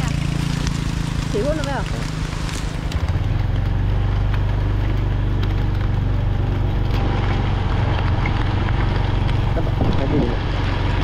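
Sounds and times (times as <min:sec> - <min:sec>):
motorbike engine running: 0:00.0 - 0:11.0
rain: 0:00.0 - 0:11.0
raindrop ticks: 0:00.0 - 0:11.0
wind noise: 0:06.6 - 0:10.6.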